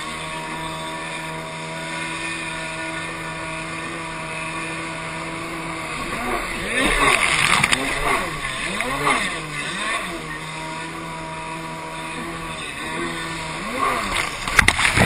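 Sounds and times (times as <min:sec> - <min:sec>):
jet ski engine revving: 0:00.0 - 0:15.0.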